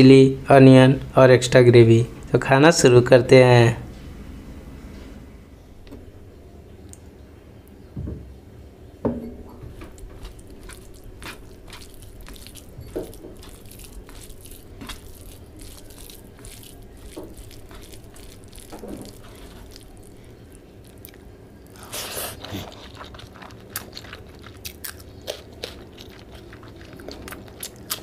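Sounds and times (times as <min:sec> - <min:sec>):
fingers squishing rice and gravy: 0:09.6 - 0:28.0.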